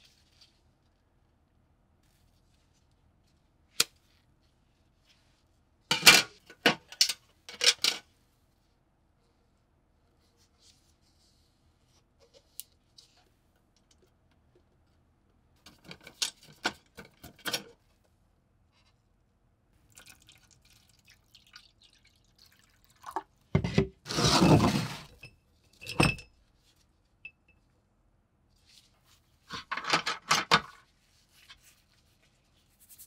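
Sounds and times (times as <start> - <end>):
small clicks and splashes: 19.8 - 23.4.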